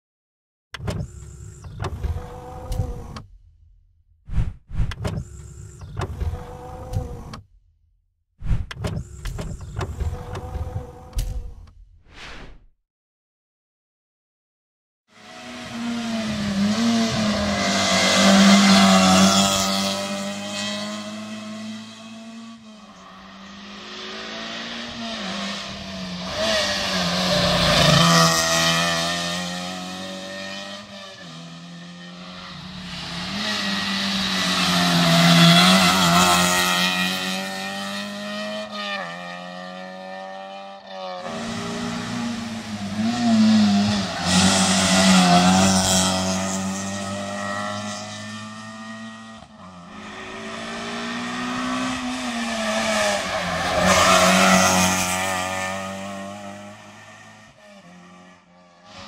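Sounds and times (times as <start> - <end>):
rally cars passing at speed: 15.2 - 59.0.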